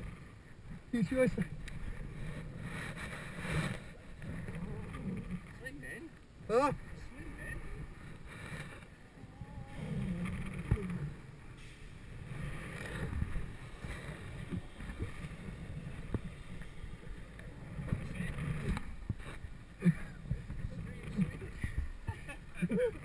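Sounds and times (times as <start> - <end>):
wind rushing over microphone: 6.4 - 23.0.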